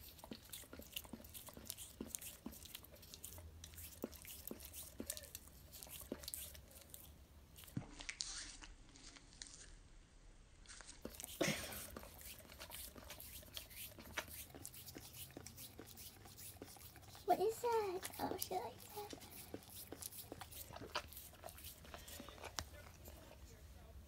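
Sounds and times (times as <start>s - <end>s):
dog licking and lapping: 0.0s - 9.1s, 10.7s - 23.6s.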